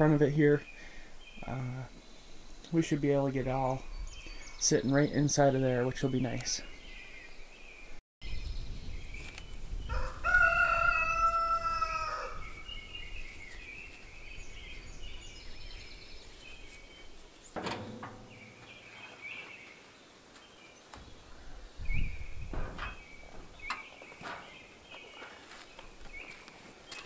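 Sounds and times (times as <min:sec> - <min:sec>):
small birds chirping: 0:00.0 - 0:27.0
rooster crowing: 0:09.9 - 0:12.5.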